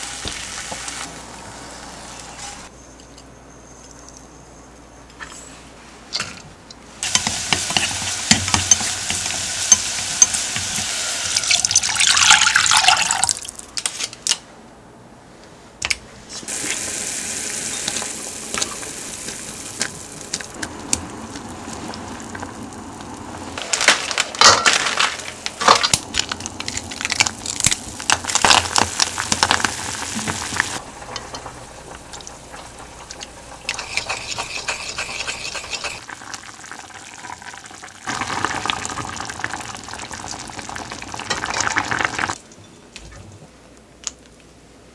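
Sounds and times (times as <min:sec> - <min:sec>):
broth pot hissing: 0:07.0 - 0:12.3, 0:16.5 - 0:23.7, 0:26.1 - 0:40.0
water running: 0:07.0 - 0:13.6, 0:16.5 - 0:23.6, 0:26.5 - 0:42.4
ingredients clinking and splashing: 0:16.6 - 0:39.1.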